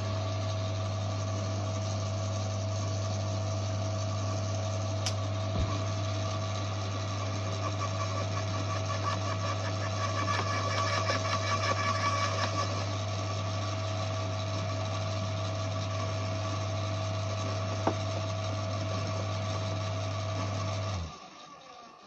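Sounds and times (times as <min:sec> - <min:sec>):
garden shredder running: 0:00.0 - 0:22.0
motor running down: 0:05.3 - 0:22.0.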